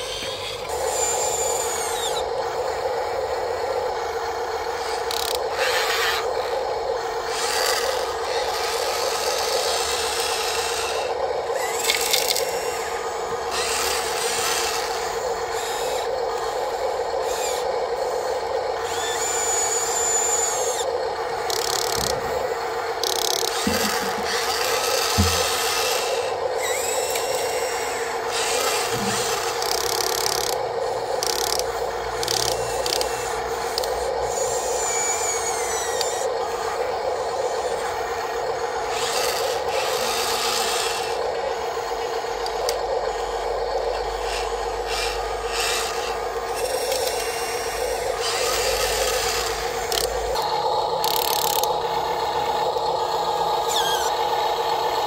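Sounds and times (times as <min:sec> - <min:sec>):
small electric motors whining: 0:00.0 - 0:55.0
dull knocks: 0:25.1 - 0:25.6.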